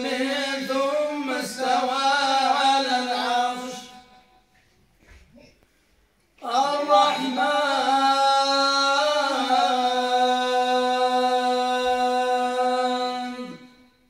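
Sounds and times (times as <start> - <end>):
man chanting into a microphone: 0.0 - 4.3, 6.4 - 14.0.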